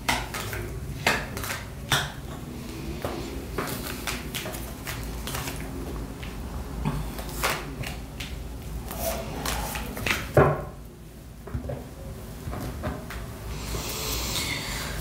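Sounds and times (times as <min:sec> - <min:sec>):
cards being shuffled: 0:00.0 - 0:01.8, 0:03.1 - 0:06.4, 0:07.1 - 0:10.4.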